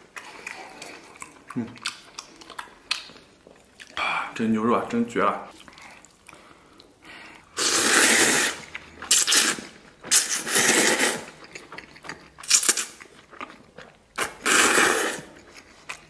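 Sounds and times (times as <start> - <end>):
person slurping noodles: 7.4 - 11.4, 14.2 - 15.4.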